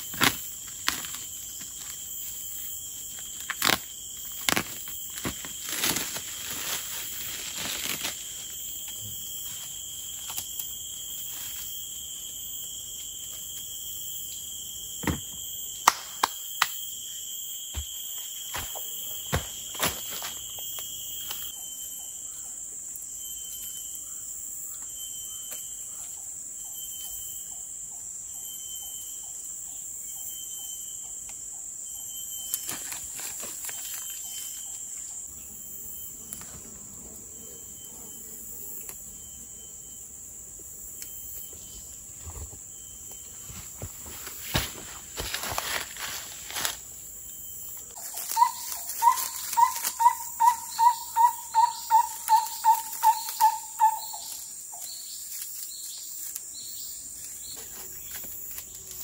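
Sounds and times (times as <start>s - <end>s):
insects chirring: 0.0s - 59.0s
pulsing chirp: 48.0s - 55.0s.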